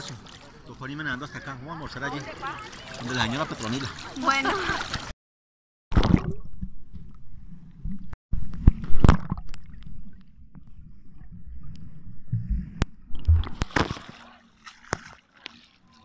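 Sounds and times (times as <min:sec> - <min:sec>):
water splashing: 0:00.0 - 0:05.1, 0:08.8 - 0:16.0
muffled underwater water rumble: 0:06.0 - 0:14.6.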